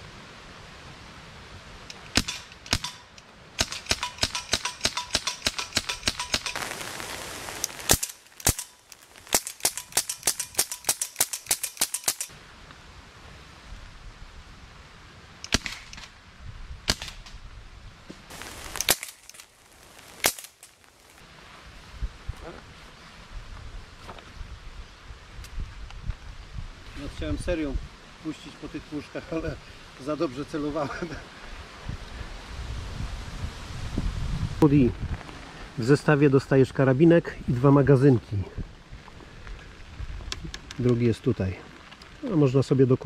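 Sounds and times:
pellet rifle shots: 0:02.1 - 0:12.3, 0:15.5 - 0:16.1, 0:18.3 - 0:20.8.

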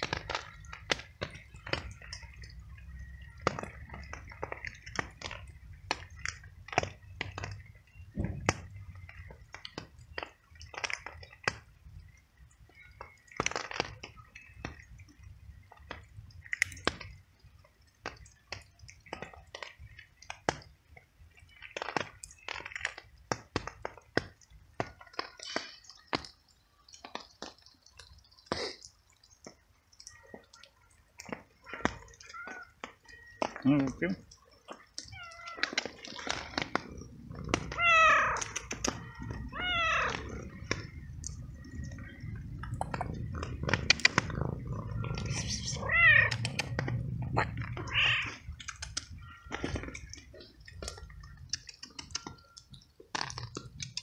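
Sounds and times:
cat crunching treats: 0:21.5 - 0:24.0, 0:33.9 - 0:54.0.

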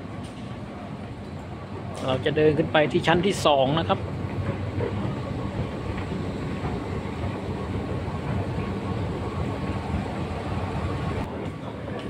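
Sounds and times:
escalator mechanical rumble: 0:00.0 - 0:12.0.

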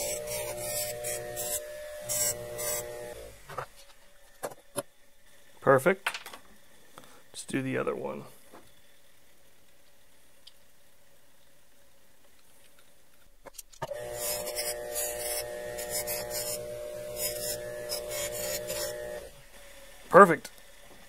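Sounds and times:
metal rasping on buffing wheel: 0:00.0 - 0:03.4, 0:13.9 - 0:19.3
bench buffer motor humming: 0:00.0 - 0:04.8, 0:13.8 - 0:21.0.

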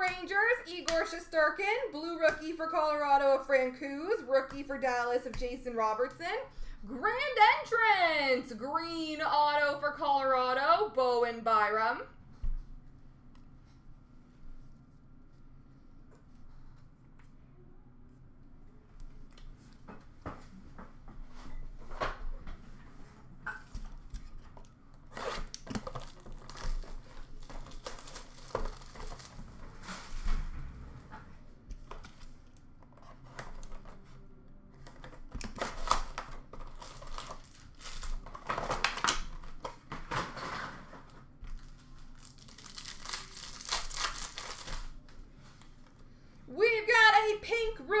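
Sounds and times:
foil wrappers tearing and crinkling: 0:25.1 - 0:29.6, 0:35.4 - 0:39.7, 0:41.0 - 0:45.0.

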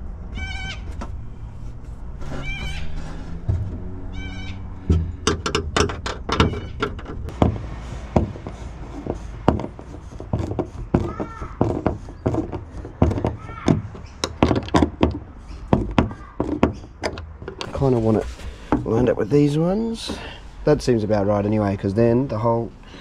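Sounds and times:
rising and falling squeaks: 0:00.2 - 0:20.0
hardware knocks and clatter: 0:03.2 - 0:04.0, 0:04.8 - 0:19.2.

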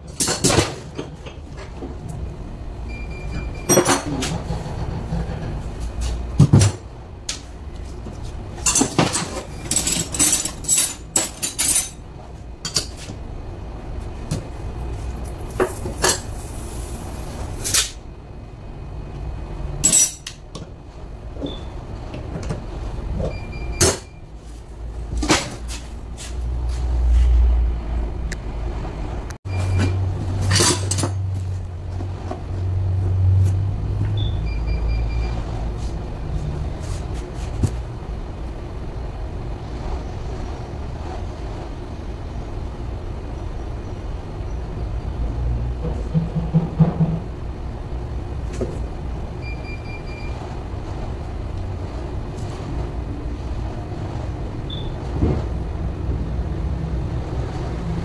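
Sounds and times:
steady low hum: 0:00.0 - 0:58.0
metal tools clinking on workbench: 0:08.6 - 0:12.0, 0:19.8 - 0:20.4.

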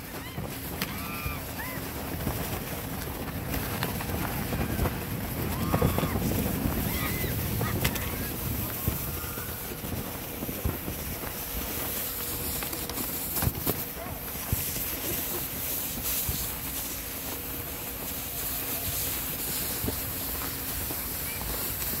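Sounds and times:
faint voices: 0:00.0 - 0:12.0
footsteps in snow: 0:00.0 - 0:22.0
snow tubes scraping over snow: 0:00.0 - 0:22.0
wind noise on microphone: 0:00.0 - 0:22.0.

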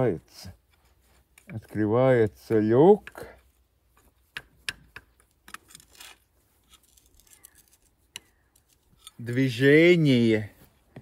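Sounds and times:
pry blade scraping metal: 0:05.5 - 0:09.4.

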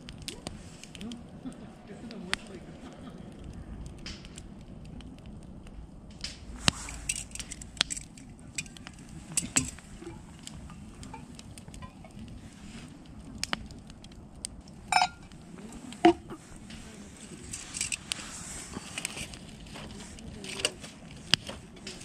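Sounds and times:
sharp pops of fire: 0:00.0 - 0:22.0
wood fire crackling: 0:00.0 - 0:22.0.

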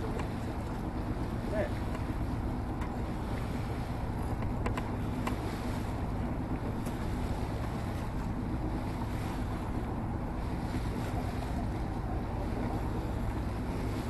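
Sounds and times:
water rushing along hull: 0:00.0 - 0:14.0
faint ticks: 0:04.4 - 0:05.4.

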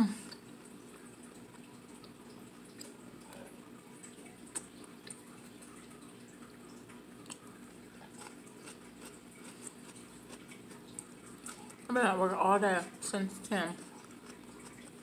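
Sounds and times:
low room hum: 0:00.0 - 0:15.0
mouth chewing: 0:07.2 - 0:11.9, 0:13.0 - 0:15.0.

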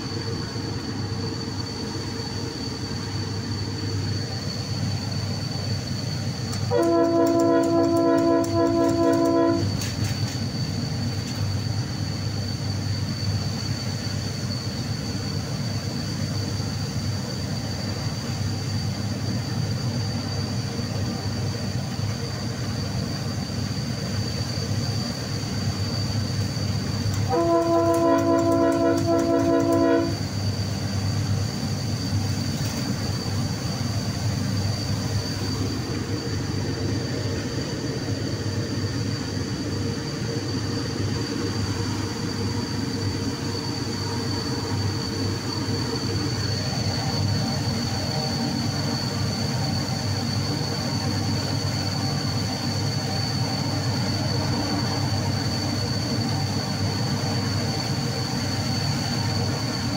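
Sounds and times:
faint high whine: 0:00.0 - 0:59.9
train running noise: 0:00.0 - 0:59.9
locomotive horn blast: 0:06.7 - 0:09.8, 0:27.3 - 0:30.2.

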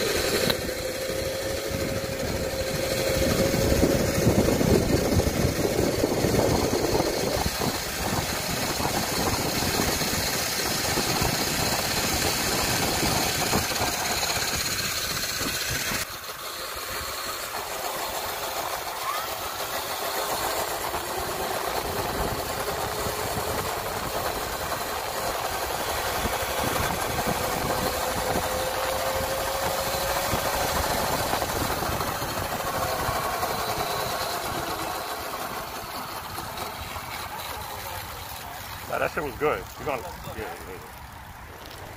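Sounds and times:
vehicle noise while riding: 0:00.0 - 0:41.9
wind rumbling on microphone: 0:01.7 - 0:16.0, 0:25.6 - 0:34.7.

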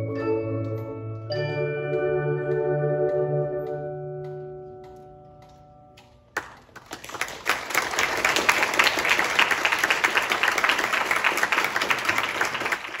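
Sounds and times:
audience applause: 0:06.4 - 0:13.0.

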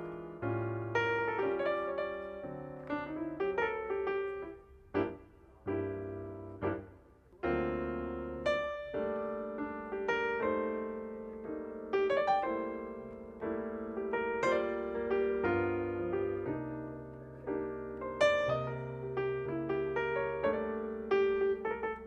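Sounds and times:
piano music: 0:00.0 - 0:22.0.

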